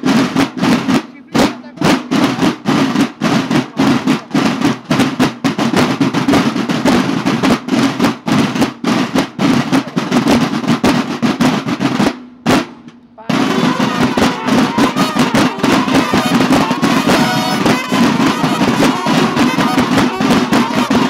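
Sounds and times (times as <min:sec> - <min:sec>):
marching snare drums: 0:00.0 - 0:21.0.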